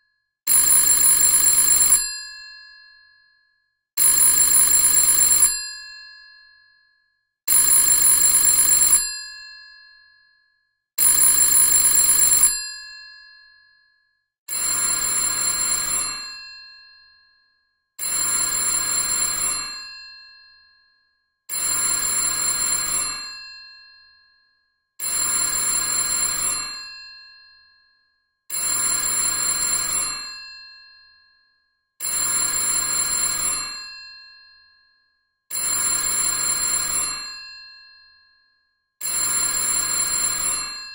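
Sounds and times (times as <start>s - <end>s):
telephone bell ringing: 0.0s - 3.0s, 4.0s - 6.6s, 7.5s - 9.9s, 11.0s - 13.2s, 14.5s - 17.2s, 18.0s - 20.6s, 21.5s - 24.2s, 25.0s - 27.8s, 28.5s - 31.3s, 32.0s - 34.9s, 35.5s - 38.3s, 39.0s - 40.9s.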